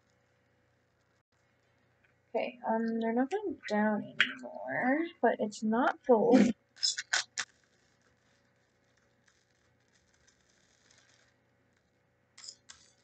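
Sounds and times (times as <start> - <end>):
plastic beads crackling and clicking: 6.8 - 13.0.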